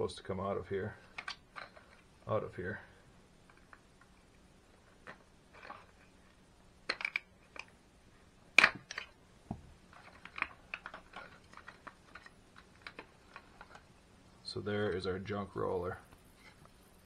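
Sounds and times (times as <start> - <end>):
hard plastic parts clicking: 1.0 - 2.1, 6.8 - 7.8, 8.5 - 13.9.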